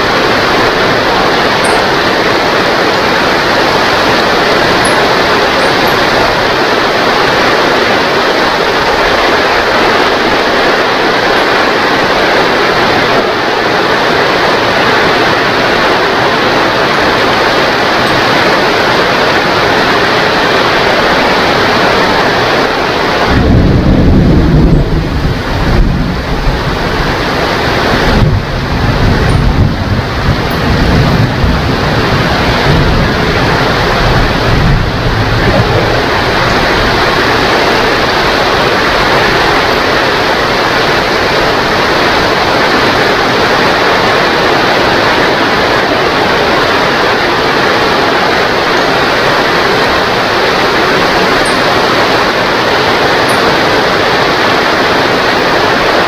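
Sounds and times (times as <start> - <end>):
steady rain: 0.0 - 56.0
thunder rumbling: 0.0 - 56.0.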